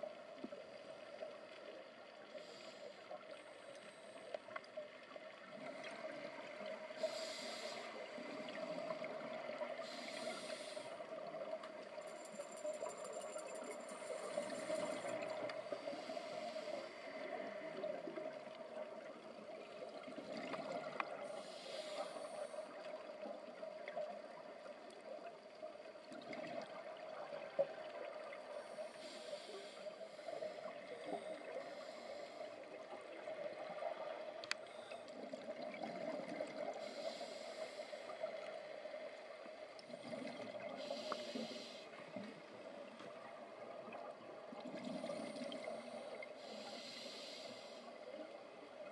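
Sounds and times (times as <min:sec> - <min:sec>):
underwater bubbling: 0:00.0 - 0:48.9
regulator breathing hiss: 0:02.2 - 0:04.4, 0:06.8 - 0:11.2, 0:13.9 - 0:18.0, 0:21.2 - 0:23.3, 0:28.6 - 0:32.8, 0:36.7 - 0:38.8, 0:40.7 - 0:42.2, 0:45.0 - 0:48.2.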